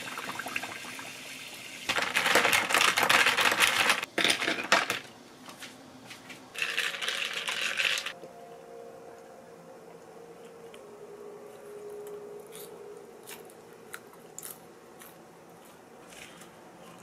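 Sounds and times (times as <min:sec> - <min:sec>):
faint room hum: 0:00.0 - 0:17.0
ice cubes clinking in glass: 0:06.6 - 0:08.1.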